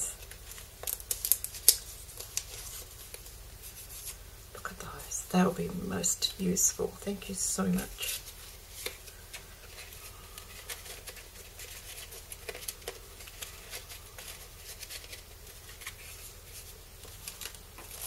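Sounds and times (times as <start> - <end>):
paper and cellophane rustling: 0.0 - 4.2, 7.8 - 18.0.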